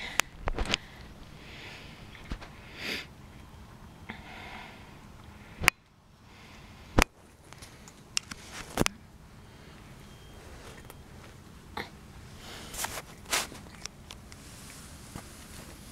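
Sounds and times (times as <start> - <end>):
cat crunching dry kibble: 12.6 - 14.8.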